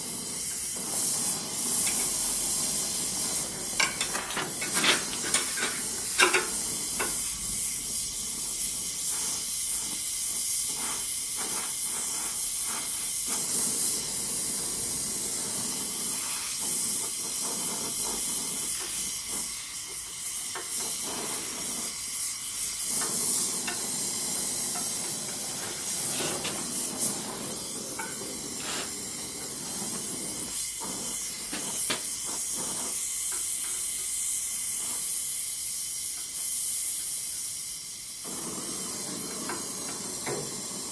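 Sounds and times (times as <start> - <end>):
gas torch flame hissing: 0.0 - 40.9.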